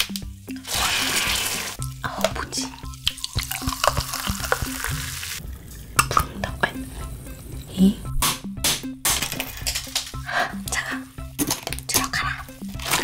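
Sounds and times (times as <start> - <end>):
background music: 0.0 - 13.0
water fizzing into a glass: 2.6 - 5.4.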